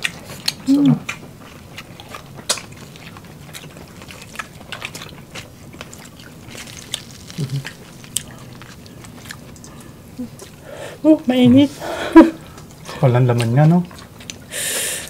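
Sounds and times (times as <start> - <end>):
people chewing and lip smacks: 0.0 - 10.6, 12.3 - 15.0
low hum of a voice: 11.0 - 11.9.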